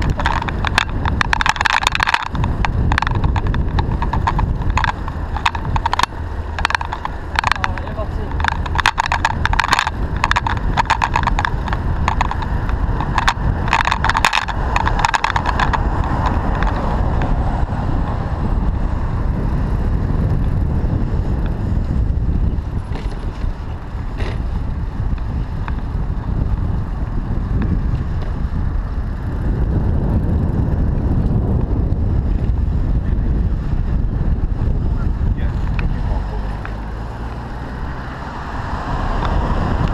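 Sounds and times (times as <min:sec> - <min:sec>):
rattling clicks: 0:00.0 - 0:17.5, 0:22.5 - 0:29.4
tyres on road: 0:00.0 - 0:39.9
wind on microphone: 0:00.0 - 0:39.9.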